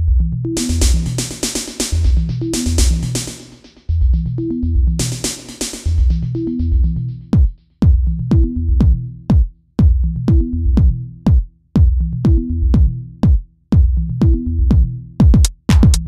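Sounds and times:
electronic dance music: 0.6 - 3.9, 5.0 - 6.5
punchy kick drums: 0.6 - 4.3, 4.9 - 16.0.

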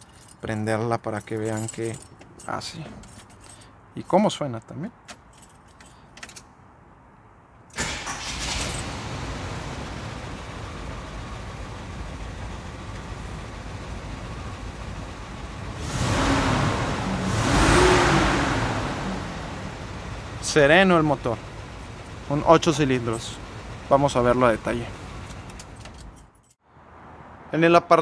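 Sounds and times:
engine starting and idling: 7.7 - 14.5
engine revving: 15.7 - 21.3.

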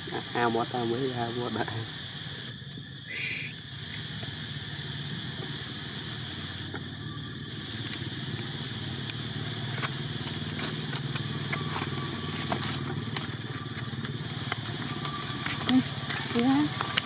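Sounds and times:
high insect drone: 0.0 - 17.0
steady low hum: 0.0 - 17.0
dry leaves crackling underfoot: 5.5 - 17.0.

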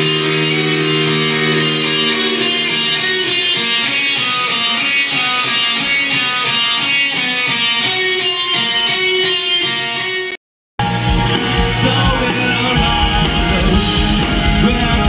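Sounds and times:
electric guitars playing melody: 0.0 - 15.0
bass and drums: 10.8 - 15.0.

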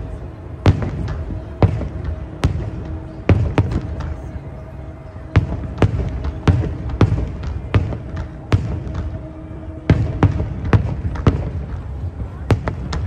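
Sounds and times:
firework shells booming: 5.2 - 13.0.

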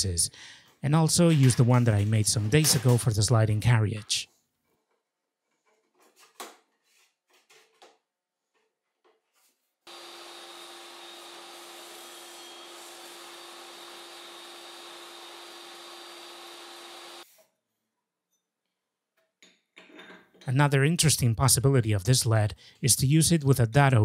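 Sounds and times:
table saw running: 9.9 - 17.2.

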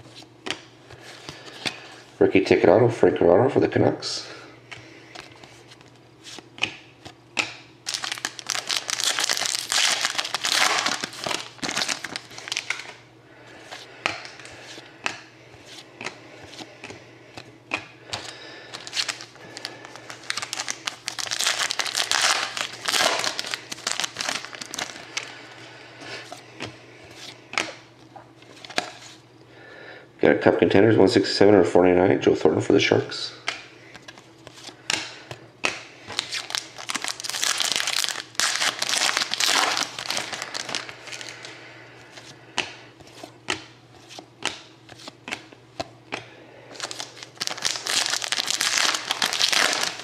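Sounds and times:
cards clicking and sliding: 4.7 - 8.1
foil wrapper crinkling and tearing: 7.8 - 13.0, 18.2 - 25.4, 36.1 - 41.5, 46.7 - 50.0.

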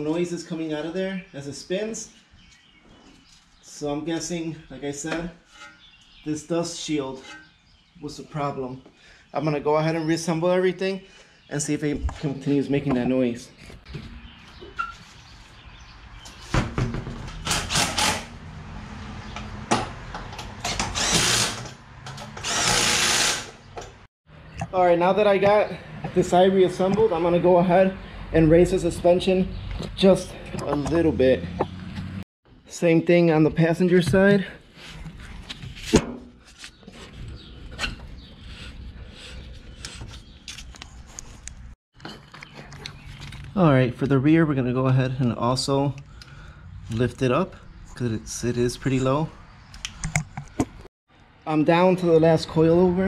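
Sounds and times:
cordless drill spinning lug nuts: 20.6 - 23.6.

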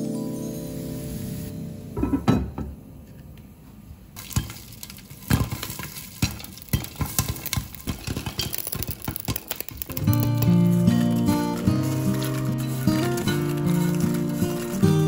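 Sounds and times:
oil sizzling: 4.2 - 15.0
popcorn popping: 4.2 - 15.0.

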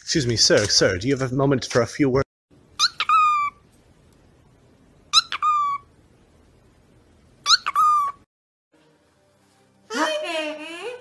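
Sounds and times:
conure calling: 2.7 - 3.7, 5.1 - 6.0, 7.4 - 8.3.

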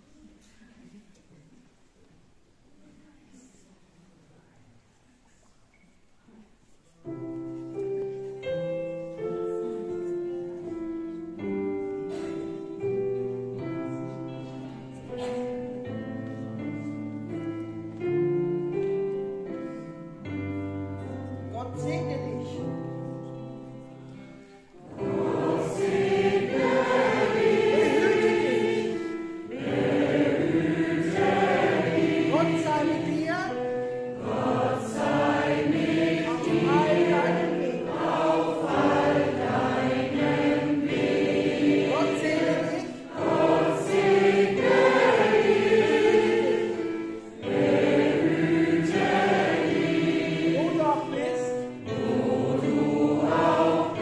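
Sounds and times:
gospel choir singing: 24.8 - 54.0.

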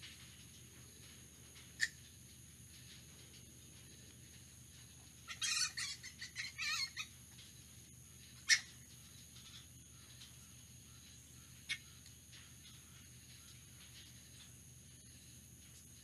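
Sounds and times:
fruit bat squawking calls: 1.8 - 2.0, 5.3 - 7.1, 8.4 - 8.8.

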